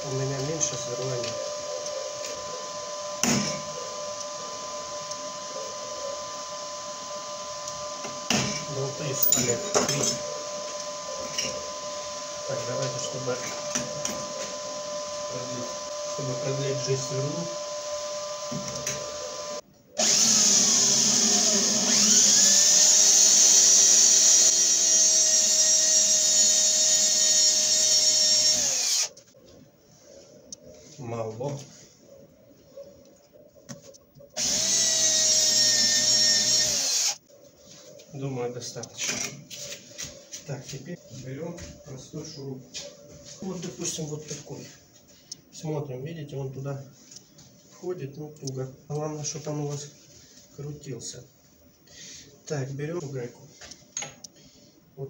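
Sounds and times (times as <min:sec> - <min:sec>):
machine whine: 0:00.0 - 0:29.3
electric drill boring into steel: 0:00.1 - 0:29.2, 0:34.4 - 0:37.2.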